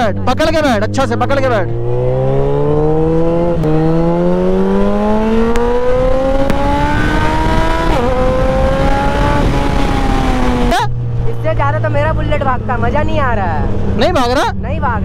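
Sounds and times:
motorcycle engine accelerating: 0:00.0 - 0:15.0
wind rush on microphone: 0:03.2 - 0:10.8.

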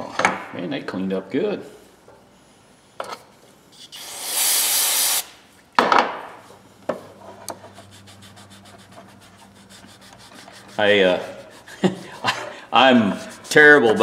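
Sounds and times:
aerosol can spraying: 0:04.0 - 0:05.3
rag rubbing plastic handle: 0:07.8 - 0:14.0.

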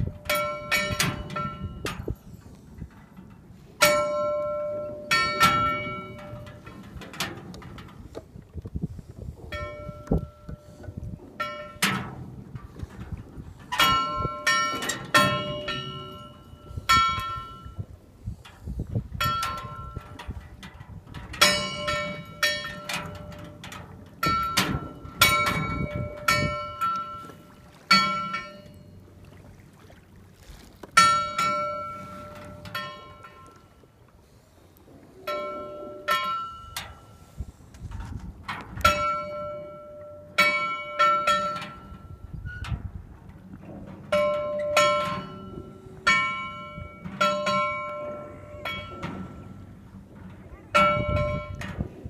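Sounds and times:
buoy bell clanging: 0:00.0 - 0:02.4, 0:03.8 - 0:06.6, 0:09.5 - 0:10.6, 0:13.7 - 0:17.9, 0:19.2 - 0:20.2, 0:21.4 - 0:23.6, 0:24.2 - 0:29.1, 0:31.0 - 0:33.6, 0:35.3 - 0:37.2, 0:38.8 - 0:42.6, 0:44.1 - 0:49.7, 0:50.8 - 0:51.6
sea wash: 0:00.0 - 0:52.0.

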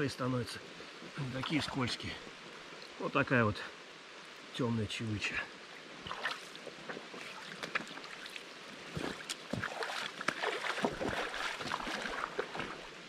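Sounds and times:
river rushing: 0:00.0 - 0:13.0
waders splashing through water: 0:06.0 - 0:13.0.

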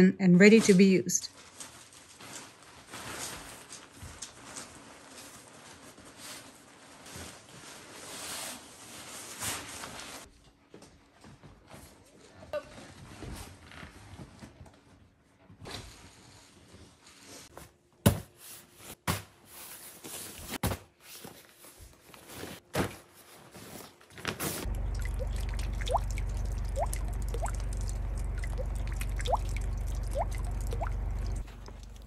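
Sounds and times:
low rumble: 0:24.7 - 0:32.0
meltwater dripping plinks: 0:24.7 - 0:32.0.

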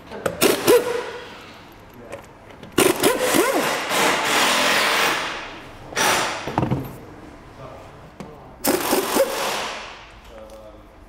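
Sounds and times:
air impact wrench whining: 0:00.4 - 0:01.4, 0:02.8 - 0:06.6, 0:08.6 - 0:10.1.

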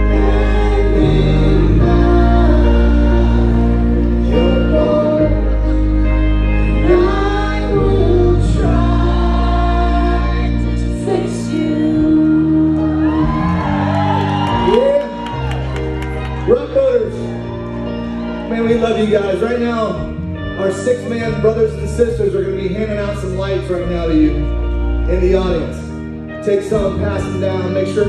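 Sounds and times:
person singing: 0:00.0 - 0:14.0
electric guitars: 0:00.0 - 0:21.6
bass guitar: 0:00.0 - 0:28.0.

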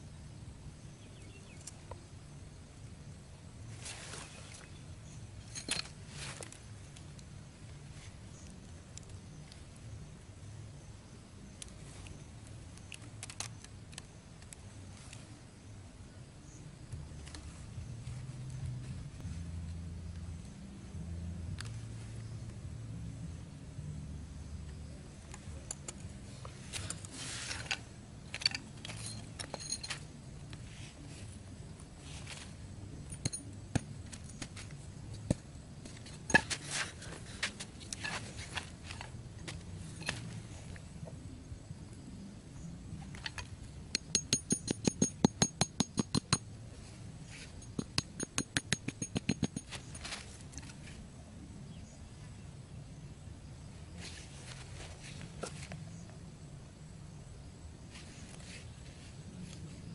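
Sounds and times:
short rustle: 0:03.7 - 0:04.7, 0:05.5 - 0:06.7, 0:26.3 - 0:27.9, 0:32.0 - 0:32.6
hammer tapping wooden stick: 0:44.0 - 0:46.4, 0:47.6 - 0:49.7.

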